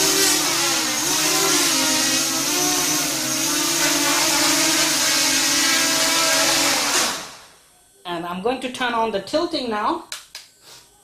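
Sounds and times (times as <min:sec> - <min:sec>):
quadcopter motors whining: 0:00.0 - 0:07.6.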